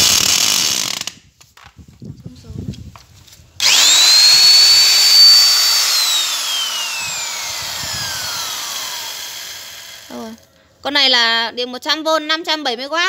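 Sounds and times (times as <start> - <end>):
electric drill whining: 0.0 - 1.2, 3.6 - 10.4.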